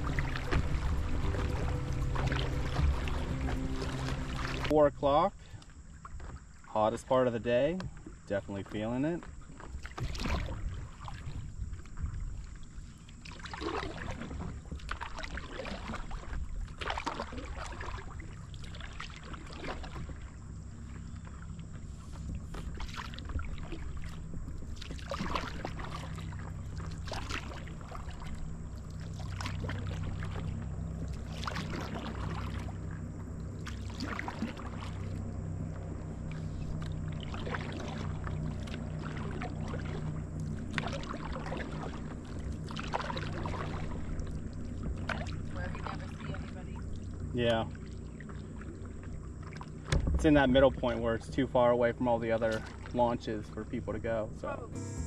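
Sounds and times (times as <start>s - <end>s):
paddle strokes splashing in water: 0.0s - 4.8s, 5.5s - 6.8s, 7.8s - 53.9s
steady low rumble: 0.0s - 5.5s, 20.1s - 47.3s, 53.6s - 55.0s.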